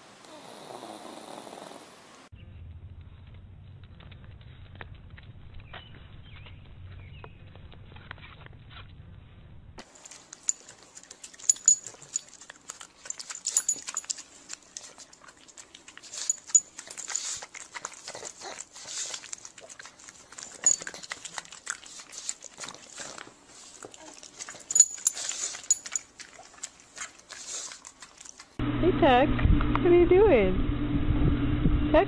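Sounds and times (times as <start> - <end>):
dog snuffling and slurping: 9.8 - 28.6.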